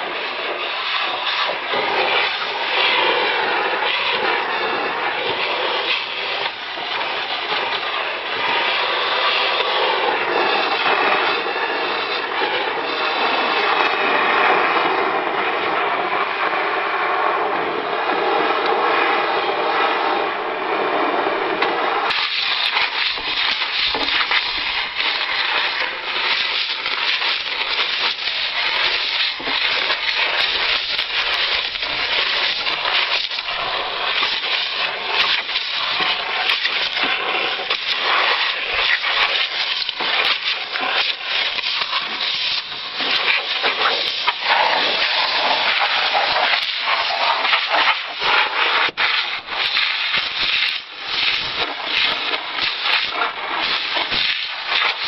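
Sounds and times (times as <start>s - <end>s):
compressed air hissing: 22.1s - 55.0s.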